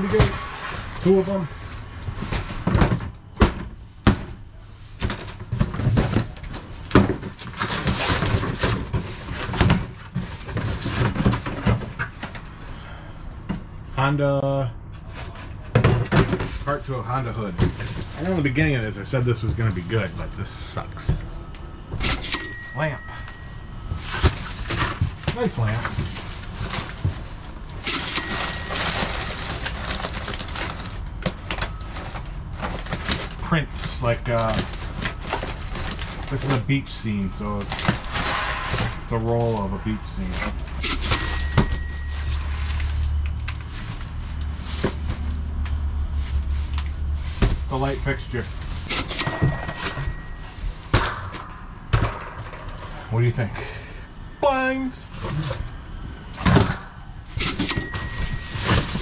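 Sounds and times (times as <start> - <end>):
cardboard rustling and scraping: 0.0 - 12.4, 23.0 - 33.4, 34.0 - 51.5, 57.5 - 59.0
cash register ka-ching: 22.0 - 24.9, 27.8 - 30.9, 40.8 - 43.0, 48.8 - 50.7, 57.4 - 59.0.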